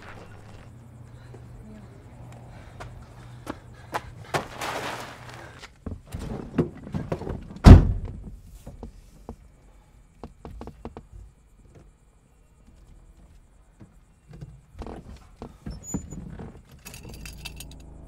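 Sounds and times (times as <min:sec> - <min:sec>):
shuffling footsteps: 0:00.0 - 0:06.1
car door slamming: 0:07.6 - 0:08.2.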